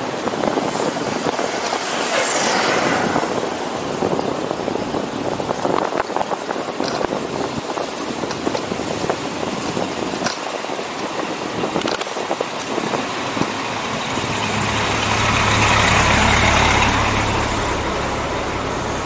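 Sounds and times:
bicycle rattles and knocks: 0.0 - 1.8, 5.5 - 13.6
city traffic noise: 0.0 - 19.0.

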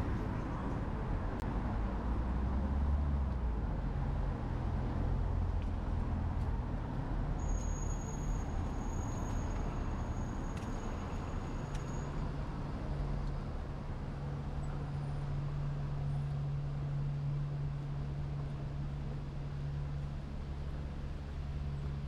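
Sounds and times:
vehicle engine low rumble: 0.0 - 22.0.

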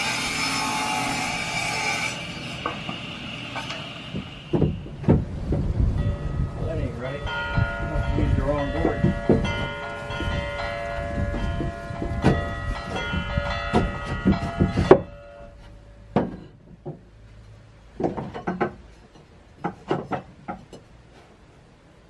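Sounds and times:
wooden boards knocking: 4.1 - 5.7, 8.8 - 9.7, 11.6 - 15.1, 16.1 - 17.1, 18.0 - 20.9.

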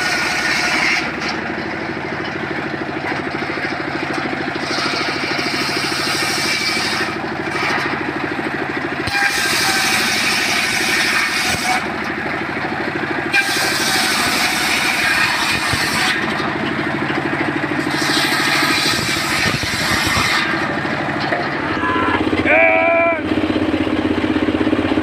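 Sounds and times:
circular saw cutting wood: 0.0 - 23.7
stationary engine running: 0.0 - 25.0
short pitched whine: 18.8 - 24.1.

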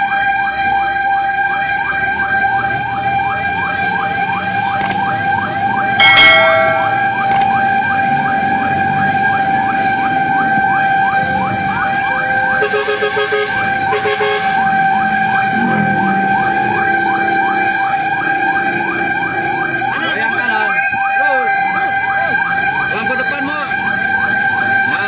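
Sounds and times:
fire truck siren yelping: 0.0 - 25.0
fire truck horn blasts: 10.3 - 16.3.

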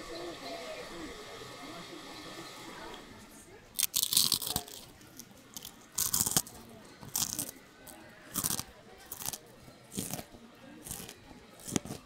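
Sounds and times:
crunching hard candy: 3.8 - 12.0.

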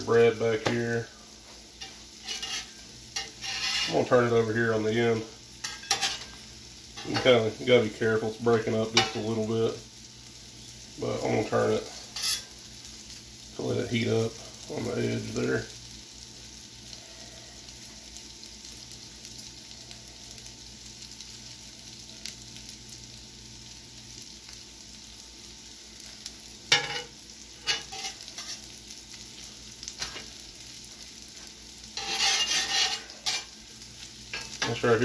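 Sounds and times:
food sizzling on griddle: 0.0 - 35.0
spatula scraping griddle: 0.2 - 6.4, 7.0 - 7.8, 8.6 - 9.4, 11.3 - 12.5, 26.7 - 28.8, 31.4 - 33.6, 34.3 - 35.0.

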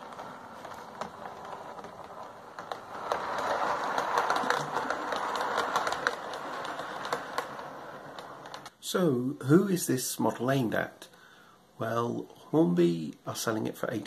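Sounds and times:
model train whirring: 0.0 - 8.8
small clicks: 0.0 - 8.8.

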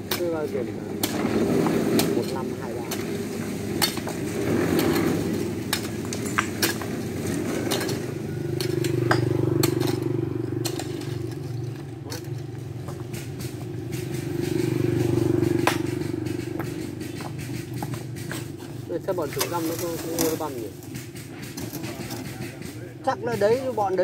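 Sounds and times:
engine droning: 0.0 - 24.0
stones and tools clinking: 0.1 - 13.6.

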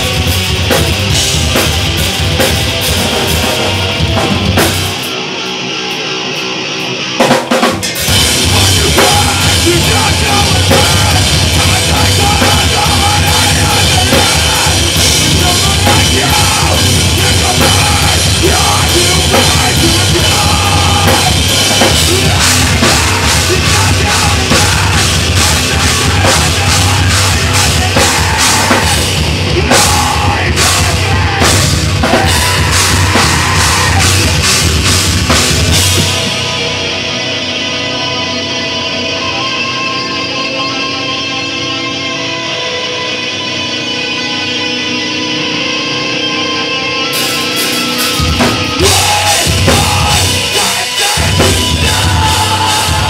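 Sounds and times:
pounding drum kit: 0.0 - 37.6, 47.1 - 53.0
bass guitar: 0.0 - 53.0
distorted electric guitars: 0.0 - 53.0
person screaming vocals: 22.0 - 34.4, 48.8 - 53.0.

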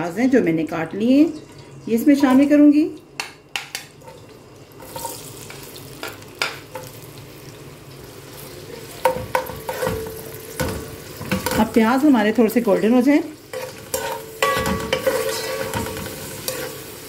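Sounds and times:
onions sizzling in a pot: 3.9 - 17.0
metal spoon scraping a pot: 13.5 - 16.8.

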